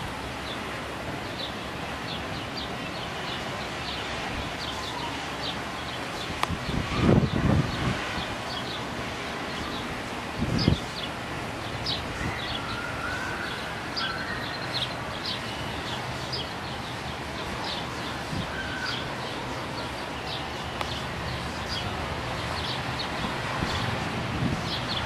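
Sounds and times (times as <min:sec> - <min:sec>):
rushing wind: 0:00.0 - 0:25.0
small birds chirping: 0:09.5 - 0:25.0.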